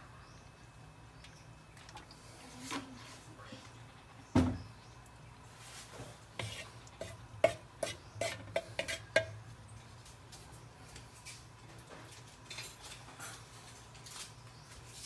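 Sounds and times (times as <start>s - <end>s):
wooden spatula scraping wok: 5.6s - 9.4s.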